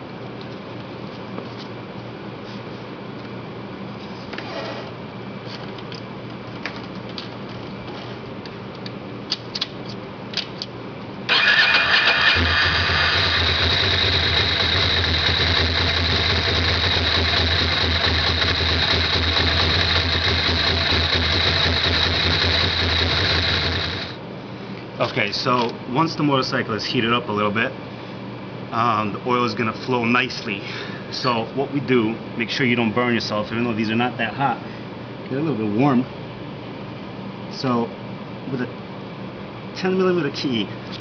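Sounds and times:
motorcycle engine starting and idling: 0:11.3 - 0:24.2.

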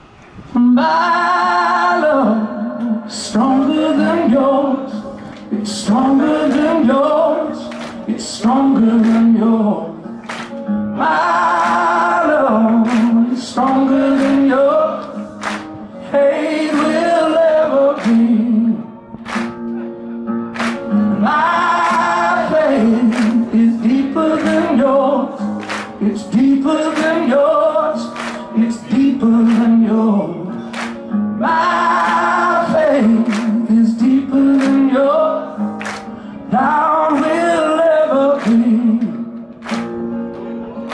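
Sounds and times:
man singing rock: 0:00.6 - 0:10.3, 0:21.2 - 0:30.7, 0:31.4 - 0:35.6, 0:36.4 - 0:39.3.

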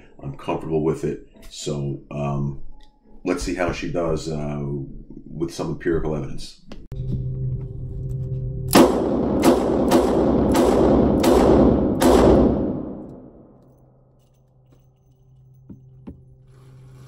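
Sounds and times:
revolver shots echoing indoors: 0:08.7 - 0:13.7.

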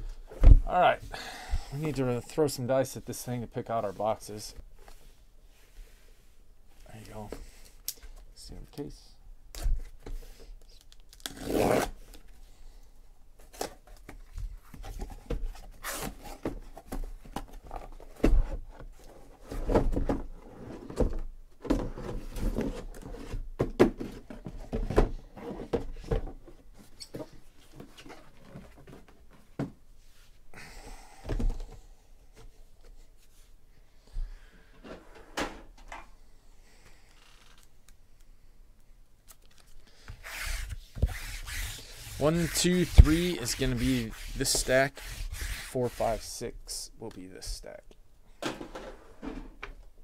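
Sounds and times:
packing tape tearing: 0:10.8 - 0:11.9.

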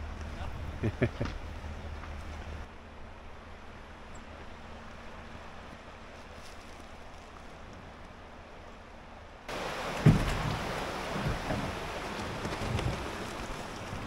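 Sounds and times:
fast-flowing river rushing: 0:09.5 - 0:14.0.

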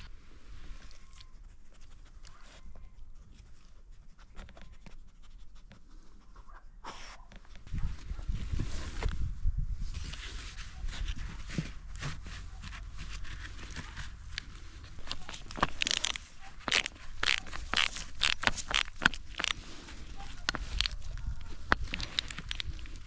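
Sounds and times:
hose rustling and scraping: 0:07.0 - 0:23.0.

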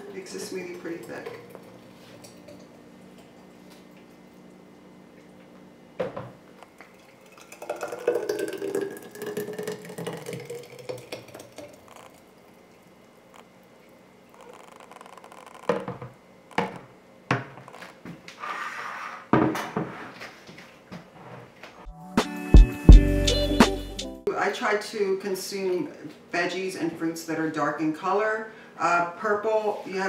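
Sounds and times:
smoothie glugging into glass jar: 0:06.6 - 0:13.6.

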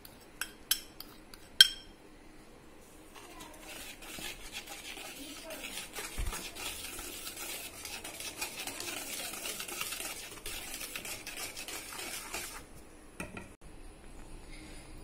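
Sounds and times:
whisk stirring flour in bowl: 0:03.1 - 0:12.8.

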